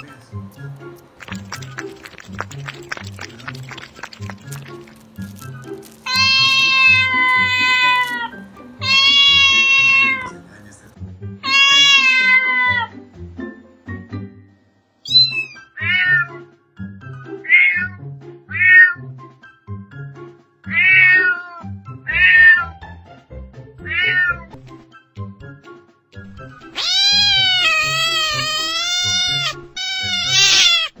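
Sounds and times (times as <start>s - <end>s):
quiet background music: 0.0s - 31.0s
cat meowing: 6.0s - 10.3s, 11.4s - 13.0s, 15.1s - 16.4s, 17.5s - 19.0s, 20.7s - 22.7s, 23.8s - 24.5s, 26.8s - 31.0s.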